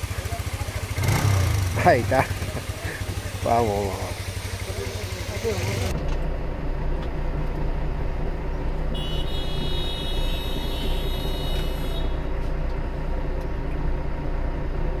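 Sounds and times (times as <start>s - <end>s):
diesel truck engine hum: 0.0s - 15.0s.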